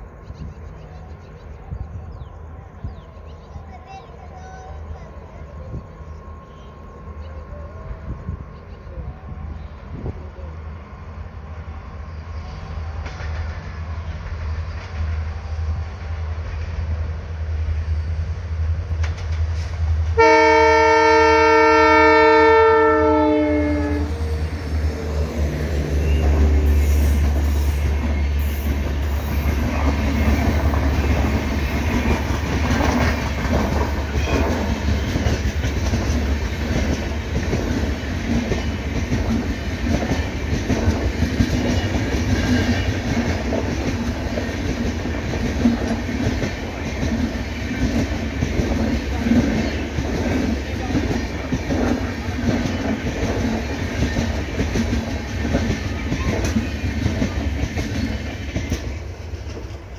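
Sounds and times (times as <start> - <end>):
train rumble: 0.0 - 59.9
locomotive horn: 20.2 - 27.9.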